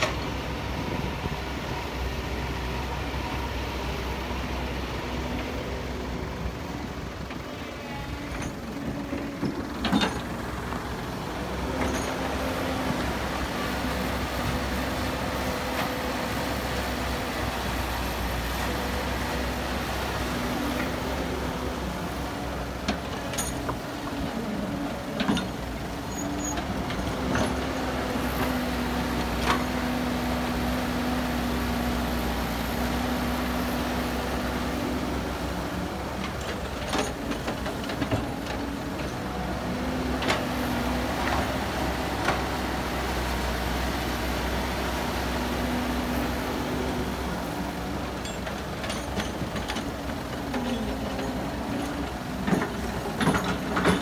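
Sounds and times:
excavator diesel engine running: 0:00.0 - 0:54.0
metal knocks and clanks: 0:52.4 - 0:54.0.

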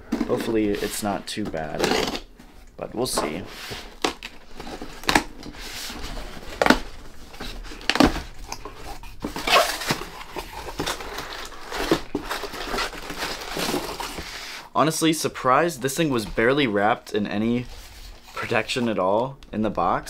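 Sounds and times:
packing paper rustling and crackling: 0:00.0 - 0:14.7.

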